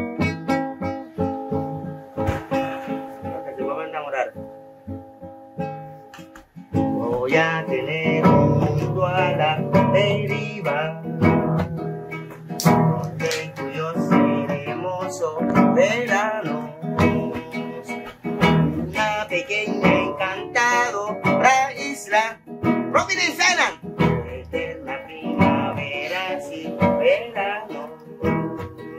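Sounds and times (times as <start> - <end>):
classical guitar strummed and picked: 0.0 - 28.9
man singing: 6.8 - 28.9.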